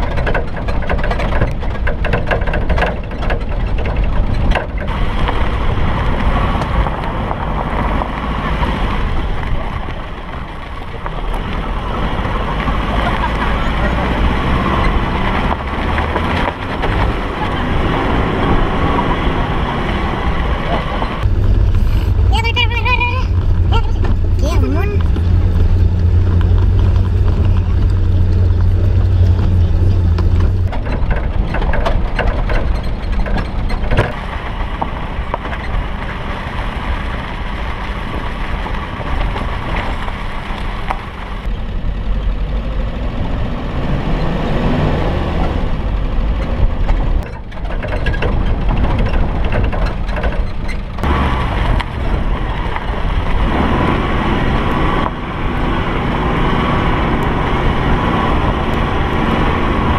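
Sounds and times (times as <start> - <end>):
knocks and rattles: 0.0 - 36.4, 45.4 - 54.0
car engine running: 0.0 - 59.9
tyre and body noise: 20.6 - 36.2.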